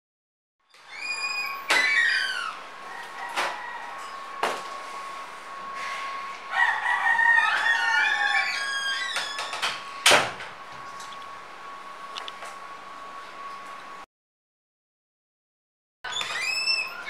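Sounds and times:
door shutting: 0.8s - 3.6s, 7.5s - 11.0s, 16.1s - 17.0s
rooster crowing: 2.1s - 4.5s, 6.5s - 9.4s.

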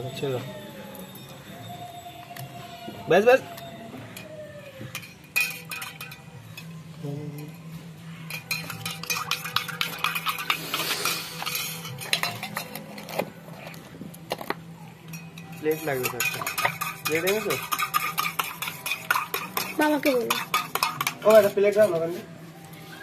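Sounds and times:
spoon clinking in a cup: 4.9s - 6.8s, 7.4s - 13.2s, 15.0s - 21.6s.

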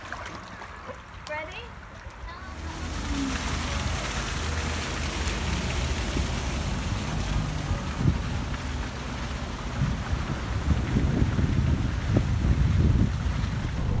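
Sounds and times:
wind buffeting microphone: 6.0s - 14.0s.

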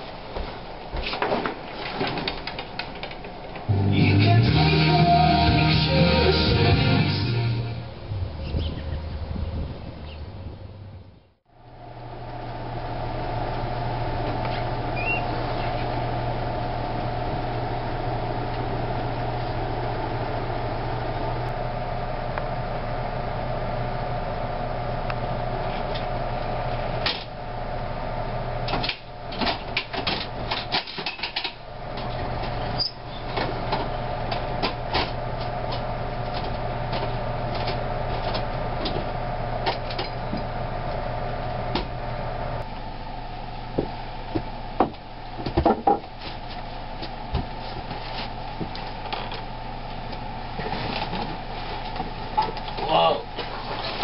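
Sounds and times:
mechanical hum: 0.0s - 54.0s
wooden knocks and clatter: 0.9s - 3.7s, 43.8s - 46.1s.

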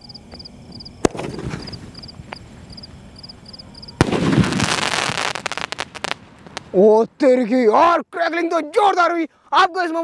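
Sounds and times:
crickets chirping: 0.0s - 10.0s
firework launch pop: 1.0s - 1.9s
firework bang and crackling: 1.0s - 3.0s, 4.0s - 6.8s
firework hissing: 1.0s - 6.8s.

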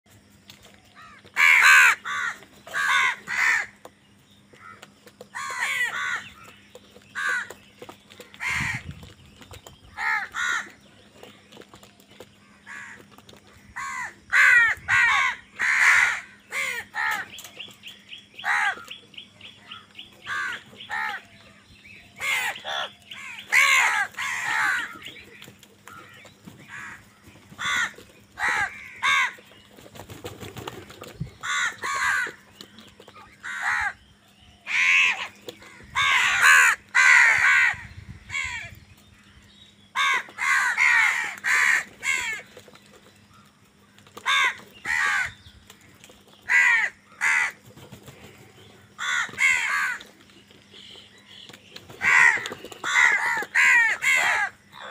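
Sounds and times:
crows cawing: 0.9s - 3.9s, 4.5s - 6.6s, 7.2s - 7.6s, 8.2s - 9.0s, 9.9s - 10.8s, 12.4s - 17.4s, 18.4s - 19.0s, 19.7s - 21.5s, 22.2s - 29.5s, 31.4s - 32.5s, 33.3s - 34.0s, 34.6s - 39.3s, 39.9s - 42.6s, 44.2s - 45.4s, 46.4s - 47.7s, 48.7s - 50.2s, 52.0s - 54.9s.

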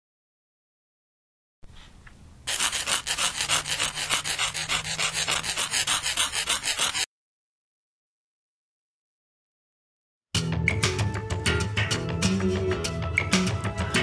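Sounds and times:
chalk scratching on a board: 2.5s - 7.1s.

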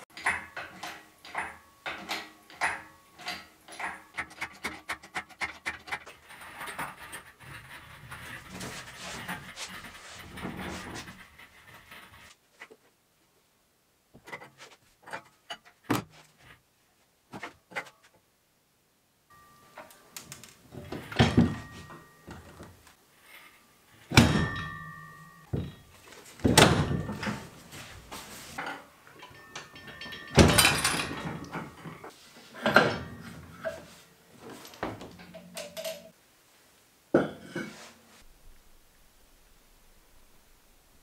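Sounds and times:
loud metallic knocks and clanks: 24.1s - 25.8s.

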